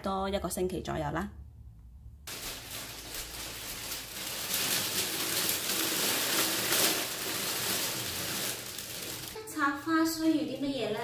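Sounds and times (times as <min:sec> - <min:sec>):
cellophane wrapping crinkling: 0:02.3 - 0:09.4.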